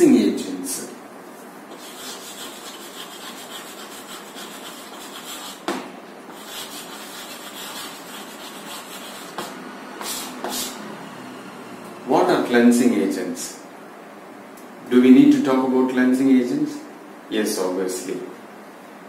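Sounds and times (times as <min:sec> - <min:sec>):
chalk scratching on a chalkboard: 0:01.7 - 0:10.8
chalk tapping on board: 0:01.7 - 0:10.8.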